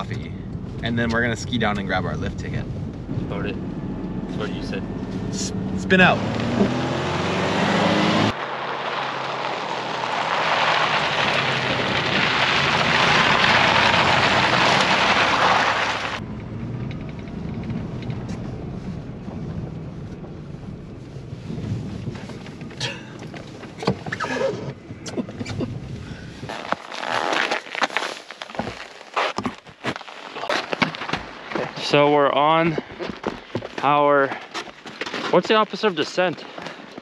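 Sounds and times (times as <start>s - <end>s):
truck engine hum: 0.0s - 26.6s
wind and tyre noise: 0.0s - 37.0s.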